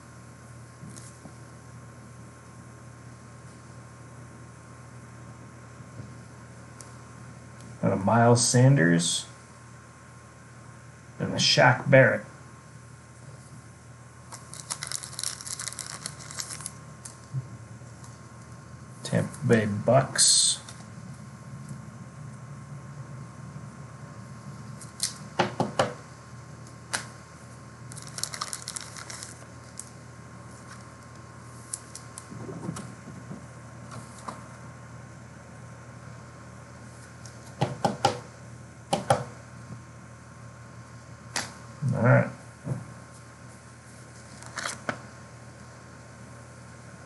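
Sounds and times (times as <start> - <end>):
steady electrical hum: 0.0 - 47.0
cards clicking and tapping on table: 37.6 - 38.3, 38.9 - 39.3.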